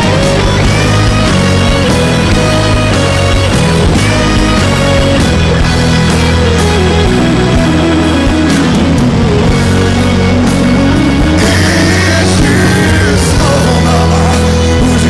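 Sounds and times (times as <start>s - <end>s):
loud rock music: 0.0s - 15.0s.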